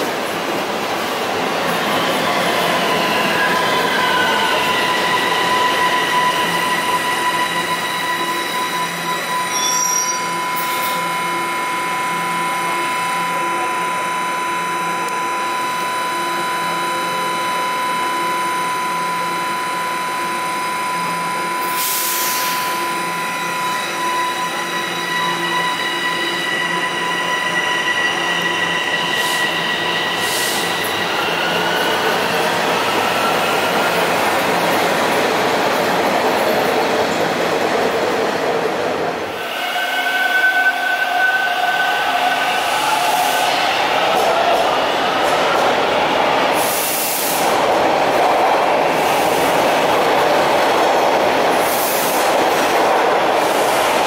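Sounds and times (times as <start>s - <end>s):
steel wheels rumbling on rail: 21.5s - 54.0s.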